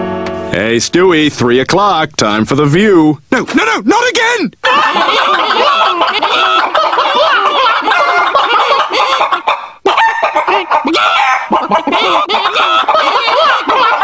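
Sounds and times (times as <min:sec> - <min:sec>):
hens clucking: 0:04.6 - 0:14.0.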